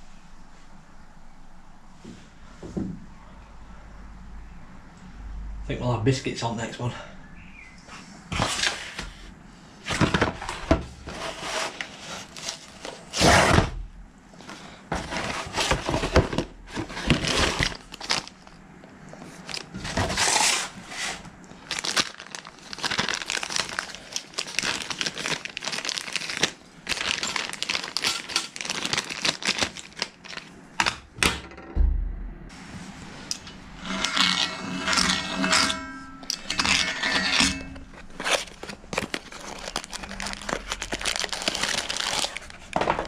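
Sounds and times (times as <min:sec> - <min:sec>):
plastic bags crinkling: 0:14.4 - 0:20.9, 0:21.5 - 0:30.9, 0:36.2 - 0:43.0.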